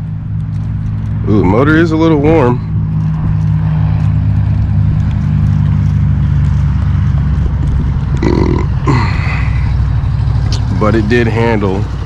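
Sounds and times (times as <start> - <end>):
engine idling: 4.7 - 12.0
grunt-like voice sounds: 8.2 - 9.8.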